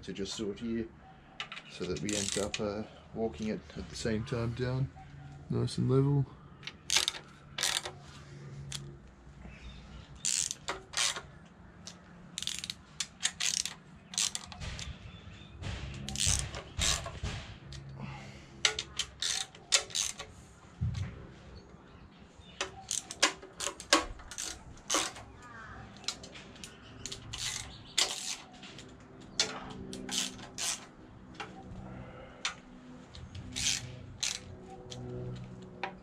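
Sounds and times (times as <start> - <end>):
hand ratchet clicking: 1.4 - 2.6, 6.6 - 8.0, 10.2 - 14.9, 16.0 - 17.9, 18.6 - 20.3, 22.6 - 25.2, 26.0 - 28.5, 29.4 - 31.6, 32.4 - 35.0.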